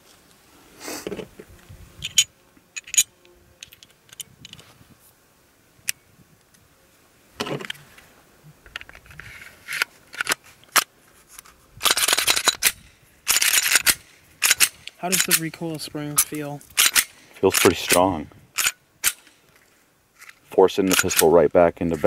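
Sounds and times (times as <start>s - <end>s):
pistol parts clicking and scraping: 2.0s - 4.6s, 8.6s - 22.0s.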